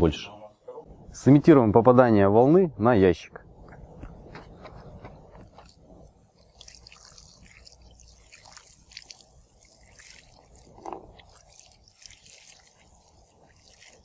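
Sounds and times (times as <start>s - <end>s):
water running onto concrete: 5.4s - 14.0s
water splashing on plastic lid: 10.1s - 11.7s.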